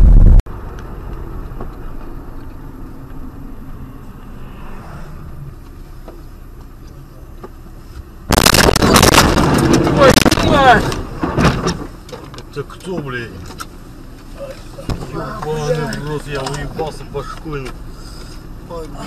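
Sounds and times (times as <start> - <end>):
car driving hum: 0.0 - 19.0
loud car crash: 8.3 - 12.0.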